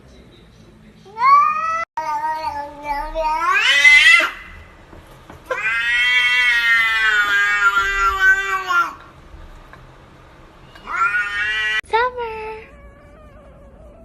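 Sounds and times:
cat meowing: 0:01.1 - 0:04.7, 0:05.5 - 0:09.0, 0:10.6 - 0:11.8, 0:12.5 - 0:14.0.

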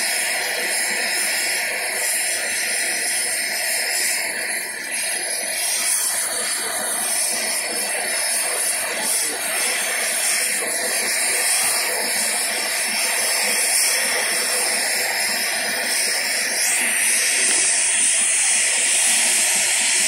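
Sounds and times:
helicopter engines hissing: 0:00.0 - 0:20.0.

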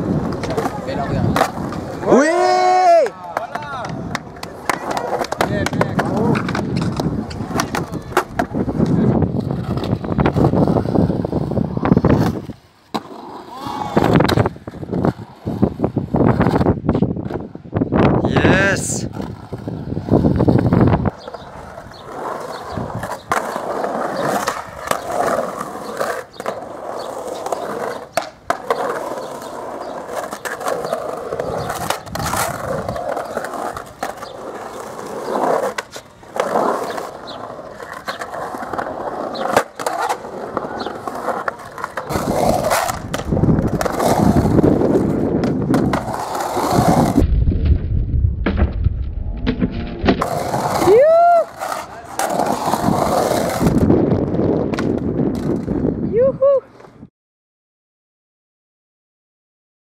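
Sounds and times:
skateboard clacking on coping: 0:00.0 - 0:17.5, 0:19.1 - 0:47.2
skateboard wheels rolling on concrete: 0:00.0 - 0:57.1.

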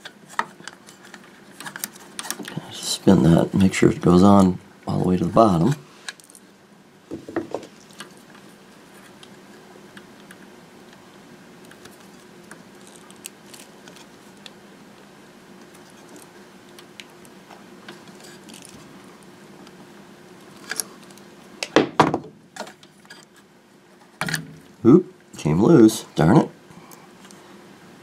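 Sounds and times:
low steady hum: 0:00.0 - 0:28.0
wire terminal clicks and rustles: 0:11.6 - 0:14.6.

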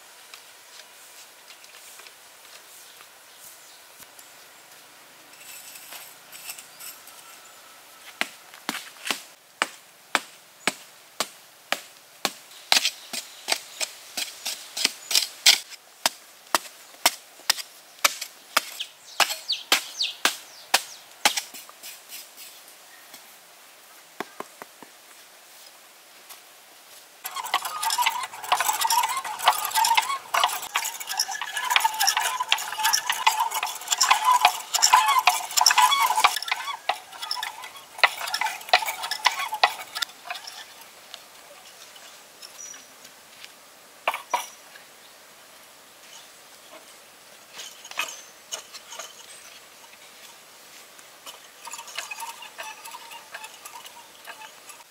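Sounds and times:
digging tool chopping dirt: 0:14.2 - 0:21.6
bamboo mechanism rapid clicking: 0:27.2 - 0:40.8, 0:51.2 - 0:54.9.

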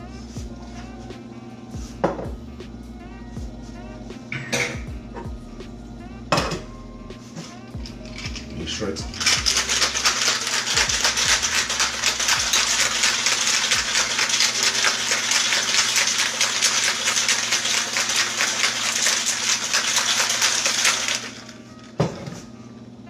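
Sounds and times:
ice rattling in cocktail shaker: 0:07.8 - 0:21.6.

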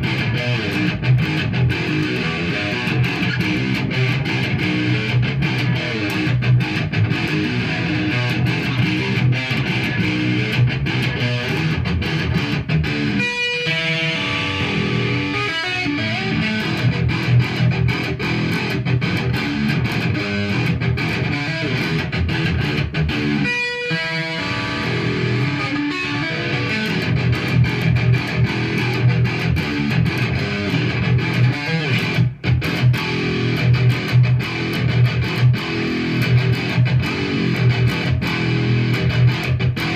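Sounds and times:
electric guitar fast picked notes: 0:00.0 - 0:39.9.

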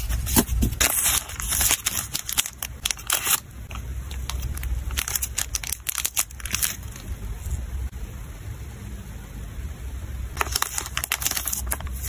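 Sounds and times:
plastic sleeves crinkling: 0:00.0 - 0:07.1, 0:10.4 - 0:12.0.

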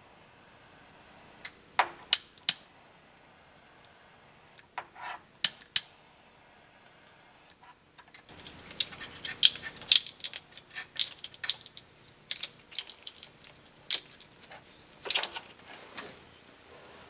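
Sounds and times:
plastic conduit clicking and rattling: 0:08.0 - 0:16.1.

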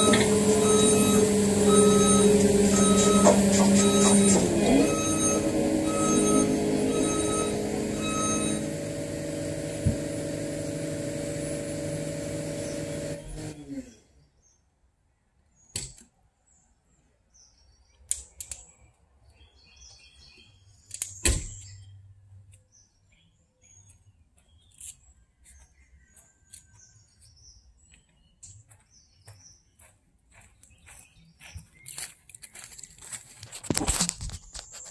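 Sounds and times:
birds chirping: 0:00.0 - 0:09.8, 0:12.4 - 0:13.2, 0:16.5 - 0:33.1.

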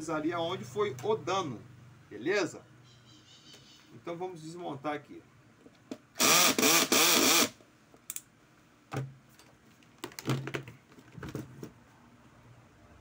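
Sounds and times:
cordless drill motor whine: 0:06.2 - 0:07.6
clicks and knocks of parts handled: 0:07.9 - 0:08.3, 0:08.9 - 0:11.8.

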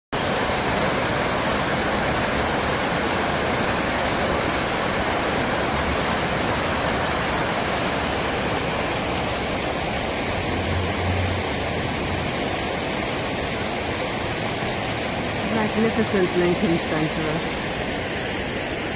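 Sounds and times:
fountain water splashing: 0:00.1 - 0:18.9.

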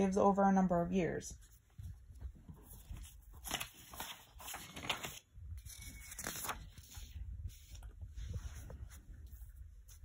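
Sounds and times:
paper rustling and sliding: 0:02.5 - 0:10.0.

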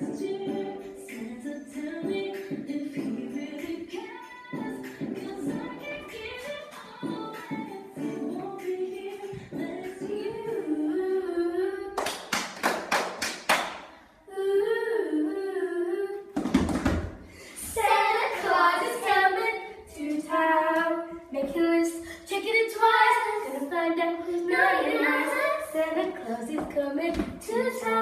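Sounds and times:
young girls singing: 0:00.0 - 0:12.6, 0:13.8 - 0:28.0
hands clapping: 0:12.0 - 0:13.9.

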